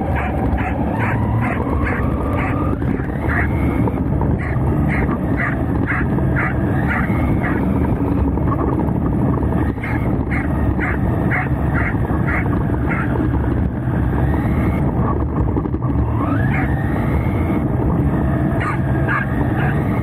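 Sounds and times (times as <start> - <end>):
rc car drive and tyre rumble: 0.0 - 20.0
dog barking: 0.1 - 3.5, 4.4 - 7.7, 9.8 - 13.1, 16.4 - 16.7, 18.6 - 19.9.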